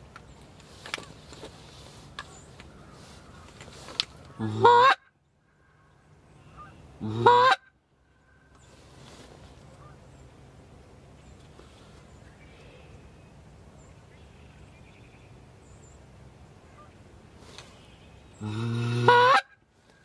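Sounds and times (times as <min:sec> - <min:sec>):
goose honks: 0:04.3 - 0:05.1, 0:06.5 - 0:07.7, 0:18.4 - 0:19.6.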